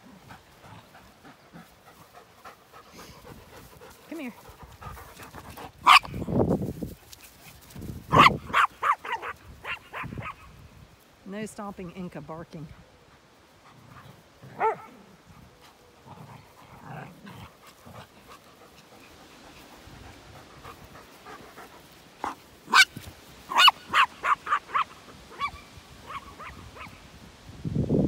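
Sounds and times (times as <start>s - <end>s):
small dog yapping: 5.8s - 6.1s, 8.1s - 10.4s, 22.2s - 27.0s.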